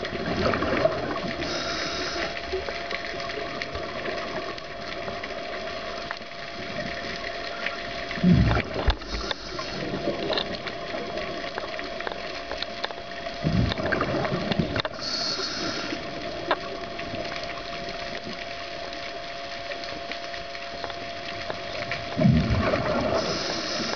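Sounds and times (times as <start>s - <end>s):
exhaled bubbles gushing: 0.0s - 6.0s, 6.6s - 18.5s, 20.8s - 23.9s
steady hum: 0.0s - 23.9s
regulator hissing inhale: 1.4s - 2.6s, 8.9s - 10.2s, 14.8s - 16.1s, 23.1s - 23.9s.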